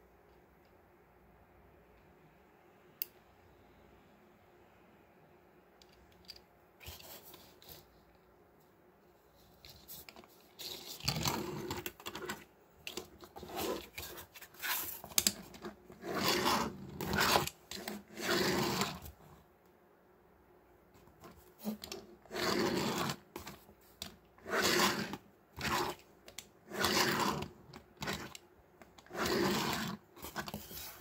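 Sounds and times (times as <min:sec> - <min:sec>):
cardboard rustling and scraping: 0:09.4 - 0:19.2, 0:29.0 - 0:31.0.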